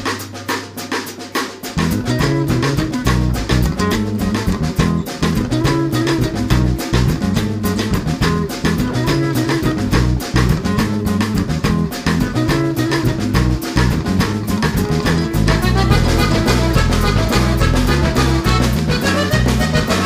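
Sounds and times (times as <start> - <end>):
instrumental music with drum beat: 0.0 - 20.0.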